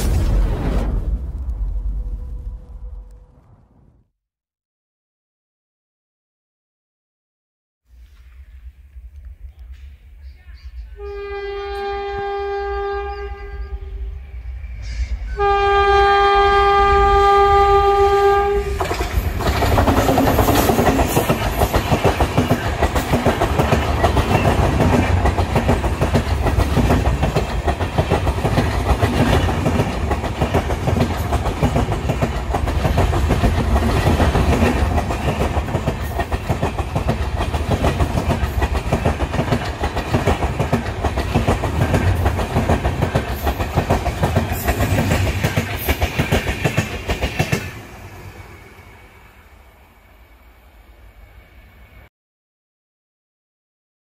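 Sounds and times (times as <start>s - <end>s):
locomotive horn chord: 11.0s - 14.2s, 15.4s - 18.8s
train wheels clattering on rails: 18.8s - 47.8s.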